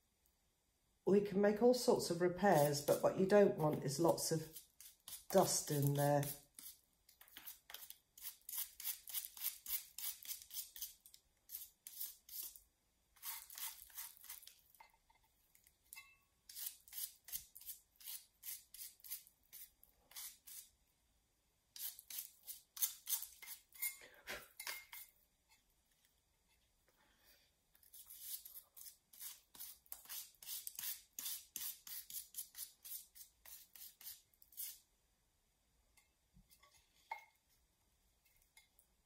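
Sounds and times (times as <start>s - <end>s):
stiff brush scratching plaster: 2.3s - 12.6s.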